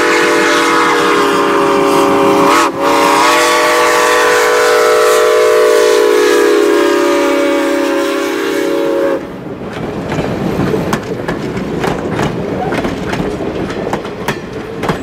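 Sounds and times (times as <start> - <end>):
steam whistle chord: 0.0 - 9.2
train wheels clicking over rail joints: 9.2 - 15.0.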